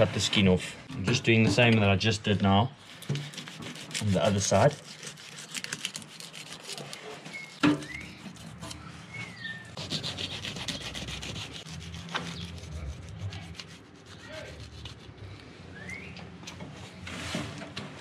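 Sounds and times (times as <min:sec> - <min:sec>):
knife scraping through fish: 0:02.8 - 0:15.2.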